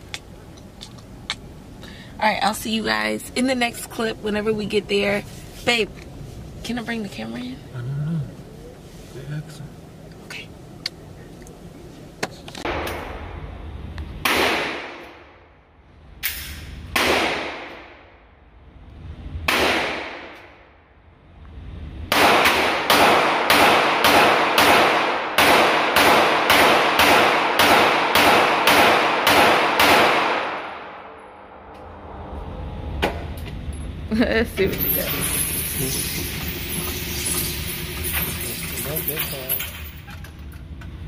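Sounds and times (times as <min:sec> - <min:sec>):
gunshots echoing indoors: 0:12.6 - 0:13.6, 0:14.2 - 0:18.4, 0:19.4 - 0:20.8, 0:22.1 - 0:32.0.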